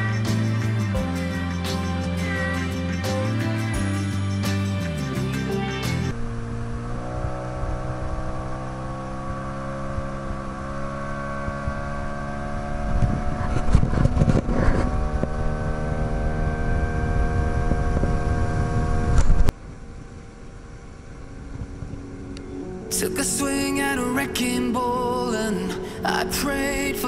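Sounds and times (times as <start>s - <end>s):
outboard motor humming: 0.0s - 19.9s.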